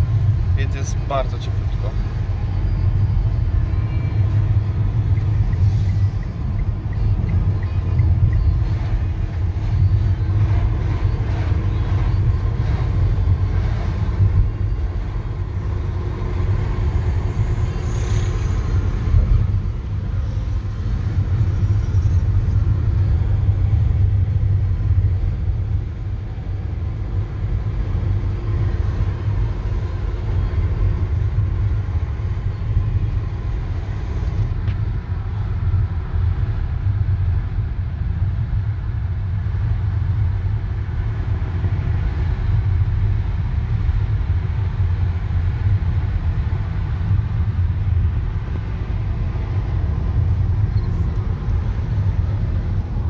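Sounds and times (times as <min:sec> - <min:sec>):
car road and engine rumble: 0:00.0 - 0:53.0.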